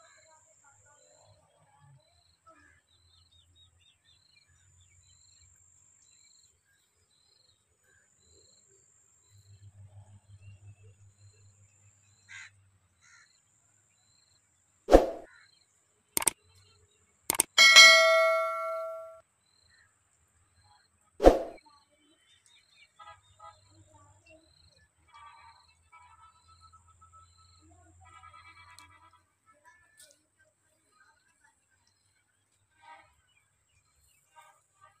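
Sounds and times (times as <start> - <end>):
sharp clicks sound effect: 14.9 - 15.3, 17.3 - 19.2, 21.2 - 21.6.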